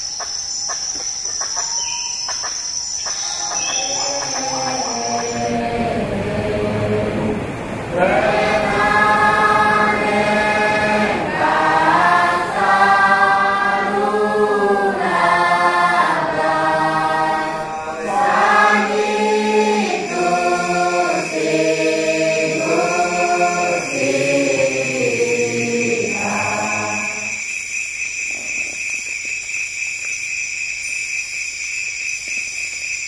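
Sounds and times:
choir singing sustained chords: 1.8 - 27.6
steady high tone: 3.1 - 15.4, 16.1 - 27.5.

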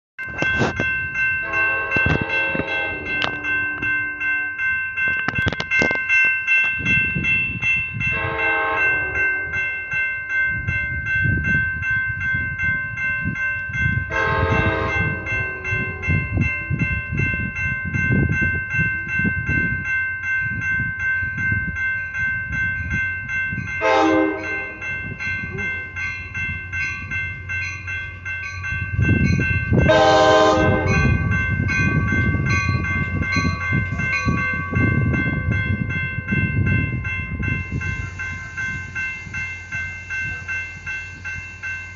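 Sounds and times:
low rumble of train: 0.2 - 41.9
railroad crossing bell ringing: 0.2 - 41.9
train horn blasts: 1.4 - 4.0, 8.1 - 9.6, 14.1 - 16.2, 23.8 - 24.8, 29.9 - 31.2.

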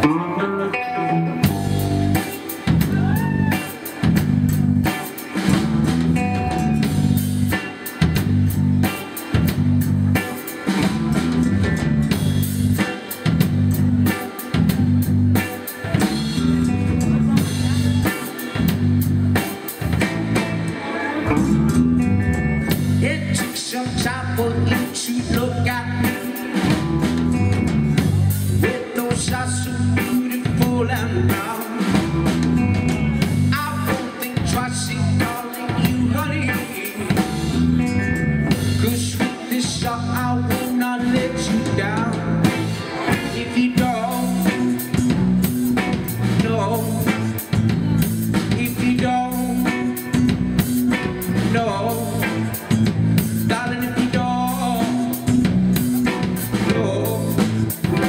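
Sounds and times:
person singing: 0.0 - 4.2, 19.3 - 22.2, 23.0 - 58.0
bass guitar: 0.0 - 58.0
drum kit beat: 0.0 - 58.0
electric guitar: 0.0 - 58.0.

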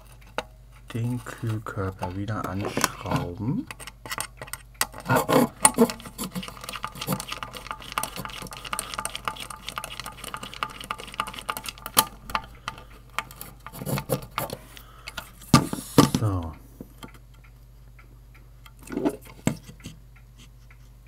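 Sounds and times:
screws clicking and rattling: 3.7 - 15.2.

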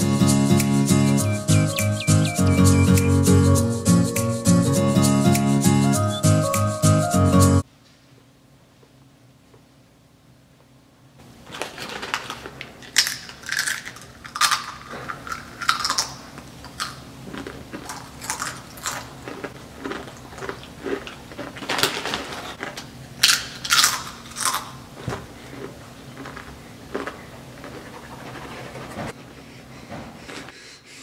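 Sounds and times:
foil bag crinkling: 11.4 - 16.2, 17.3 - 24.5
chips crunching while chewed: 11.5 - 28.4.

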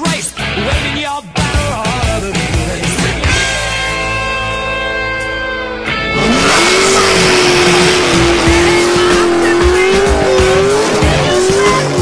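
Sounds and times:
car engine revving: 3.4 - 12.0
tyres screeching: 5.9 - 12.0.

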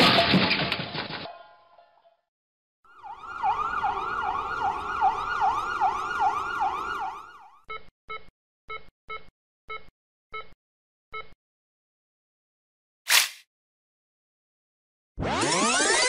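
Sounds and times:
emergency siren yelp: 2.9 - 7.6
short electronic beeps: 7.7 - 11.4.

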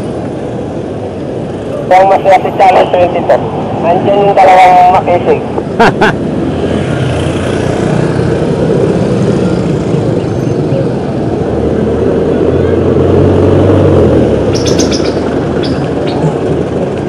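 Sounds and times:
busy street traffic: 0.0 - 17.0
diesel engine rumbling: 7.8 - 17.0.

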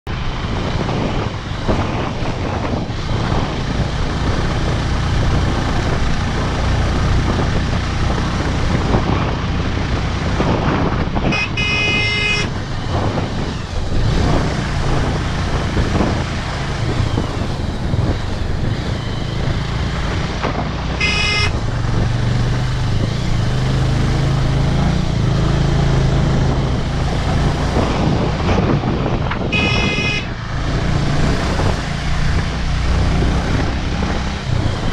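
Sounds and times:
wind and road noise: 0.0 - 34.9
motorcycle engine running: 0.1 - 34.9
horn beeping: 11.2 - 12.6, 20.9 - 21.7, 29.4 - 30.4.

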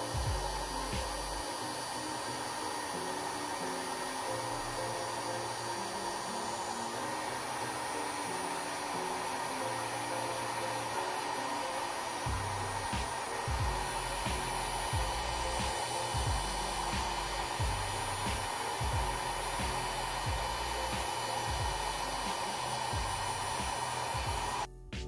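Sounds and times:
bass beat: 0.0 - 1.4, 12.3 - 22.2, 22.9 - 23.5, 24.2 - 25.0
heat gun blowing: 0.0 - 24.7
background music: 0.0 - 25.0.

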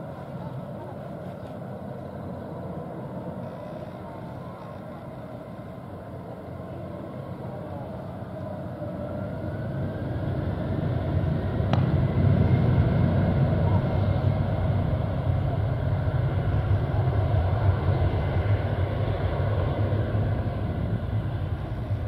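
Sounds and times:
jet engines whining and rumbling: 0.0 - 22.0.

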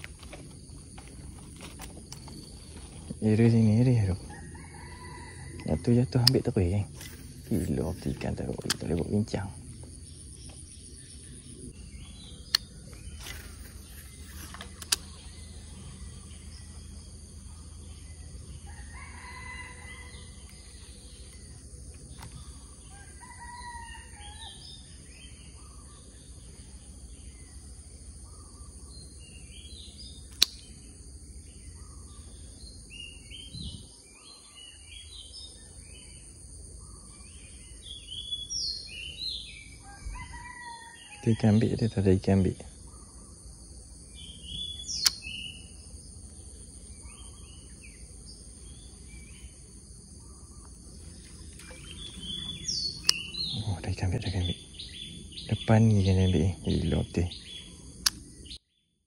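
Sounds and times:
high insect drone: 0.0 - 58.6
birds chirping: 0.0 - 58.7
sharp clicks: 6.2 - 9.1, 12.4 - 15.2, 30.3 - 30.6, 45.0 - 45.3, 58.0 - 58.3.

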